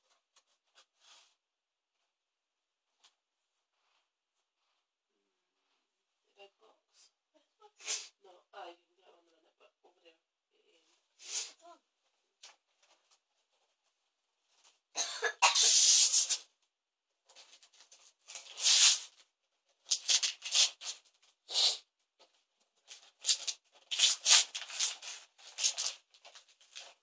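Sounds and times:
wrapping paper tearing and rustling: 0:15.6 - 0:16.4, 0:17.4 - 0:19.2, 0:19.8 - 0:21.4, 0:22.8 - 0:27.0.

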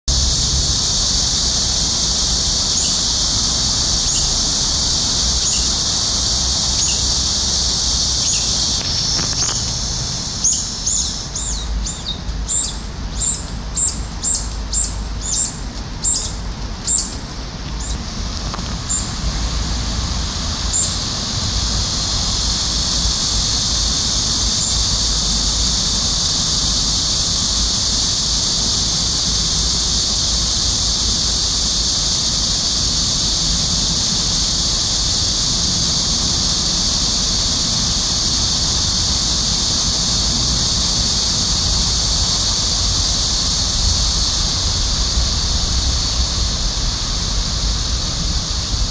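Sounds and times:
cicadas droning: 0:00.0 - 0:48.9
birds giving shrill calls: 0:02.5 - 0:18.0, 0:18.8 - 0:19.2, 0:20.7 - 0:21.0, 0:24.5 - 0:24.9.

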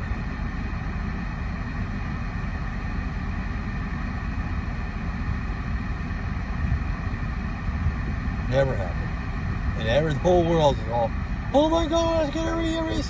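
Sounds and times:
car engine rumble from cabin: 0:00.0 - 0:13.0.

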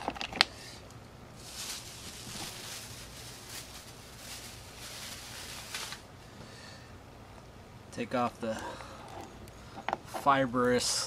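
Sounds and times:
steady low hum: 0:00.0 - 0:11.0
hands rustling and scraping crab: 0:01.4 - 0:06.1.

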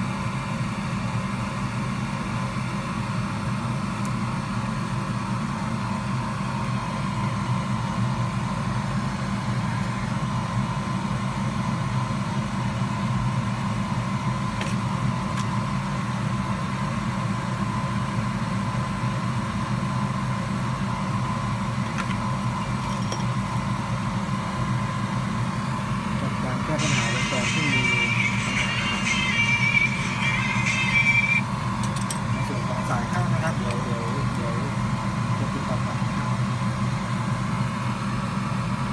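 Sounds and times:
machine hum: 0:20.5 - 0:38.9.

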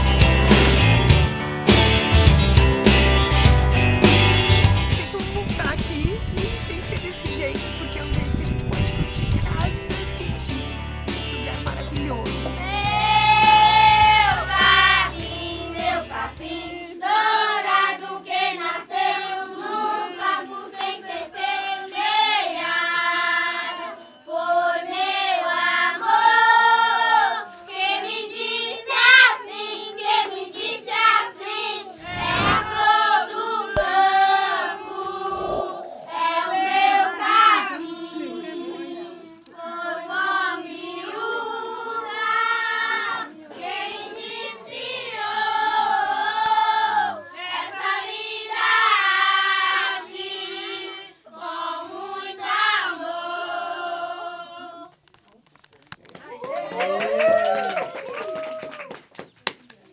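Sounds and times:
faint background music: 0:04.1 - 0:18.0
children singing in unison: 0:12.6 - 0:54.9.

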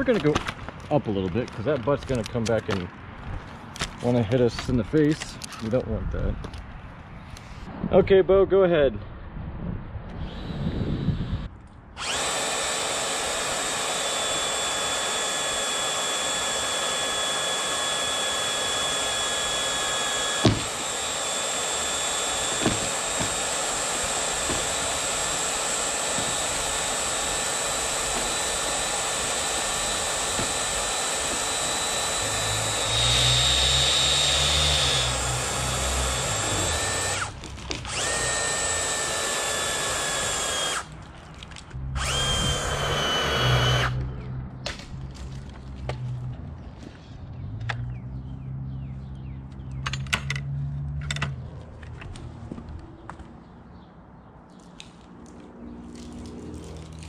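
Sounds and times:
power tool whining: 0:10.1 - 0:44.3
sharp knocks: 0:20.4 - 0:20.8, 0:22.4 - 0:23.5.

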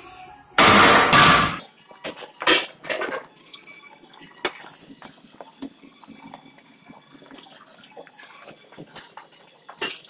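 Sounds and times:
gym room noise: 0:00.6 - 0:01.7.

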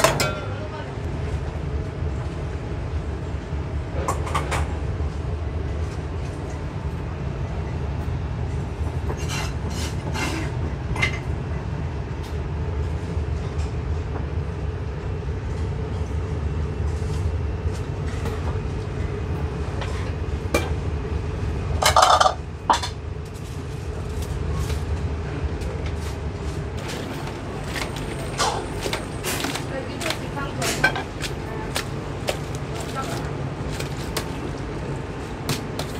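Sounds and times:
low rumble of food stall: 0:00.0 - 0:35.9
dishes clattering: 0:21.8 - 0:23.0, 0:26.9 - 0:31.3
metal utensils and dishes clinking: 0:26.8 - 0:31.3.

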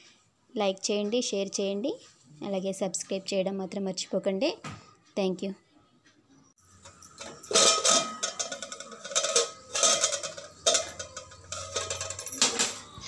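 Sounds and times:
pot lid scraping and clinking: 0:06.7 - 0:13.0.

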